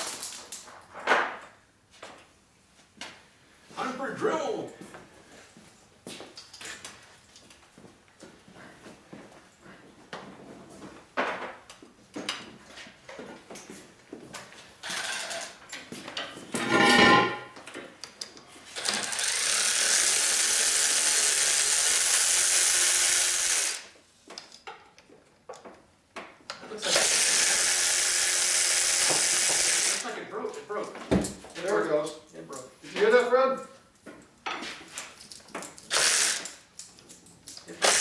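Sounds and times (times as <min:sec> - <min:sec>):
handheld power tool running: 0:18.8 - 0:23.9, 0:26.8 - 0:30.0, 0:35.8 - 0:36.6, 0:37.8 - 0:38.0
tools clicking and knocking: 0:34.1 - 0:38.0.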